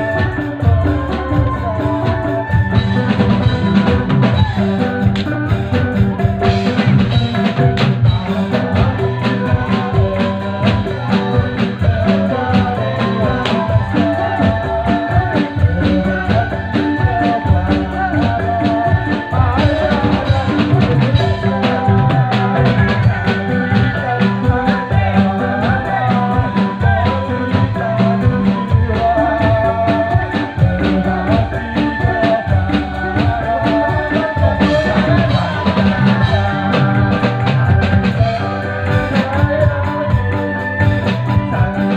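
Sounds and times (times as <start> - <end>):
drum kit beat: 0.0 - 41.9
keyboard: 0.0 - 41.9
wavering melody line: 0.0 - 41.9.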